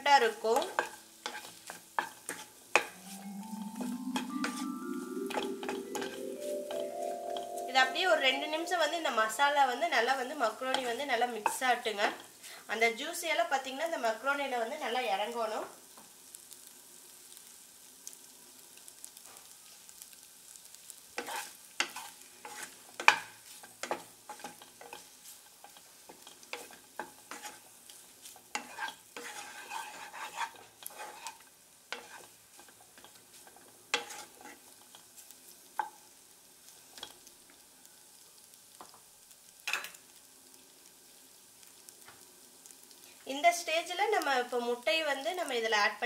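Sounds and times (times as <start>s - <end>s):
wooden spatula scraping a pan: 0.2s - 3.2s, 5.7s - 6.5s, 21.2s - 36.0s.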